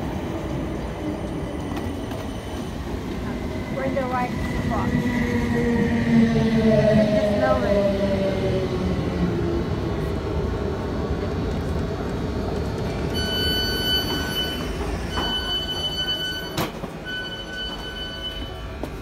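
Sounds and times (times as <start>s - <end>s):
train rumble: 0.0s - 19.0s
train door warning beeps: 13.1s - 19.0s.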